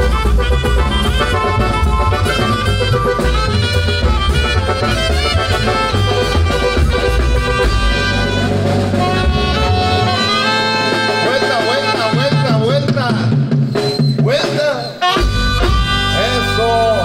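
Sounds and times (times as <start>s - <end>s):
brass band horns and woodwinds: 0.0s - 13.0s, 15.0s - 17.0s
bass drum thumping: 0.0s - 14.3s.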